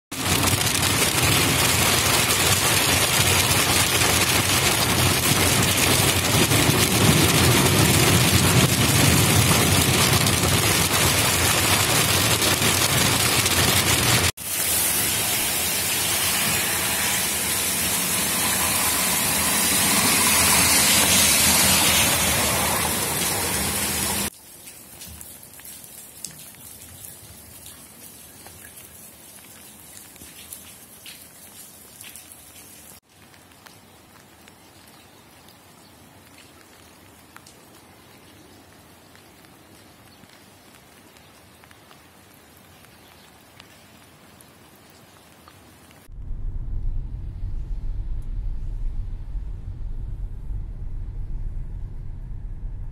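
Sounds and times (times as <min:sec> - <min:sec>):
hail drumming on car roof: 0:00.1 - 0:14.3
hail pelting on street: 0:00.1 - 0:24.3.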